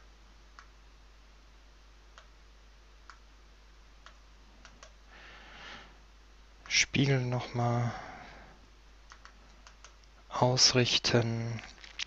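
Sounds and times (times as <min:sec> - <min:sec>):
steady low hiss: 0:00.0 - 0:12.0
computer mouse clicks: 0:04.0 - 0:05.0, 0:09.1 - 0:10.1.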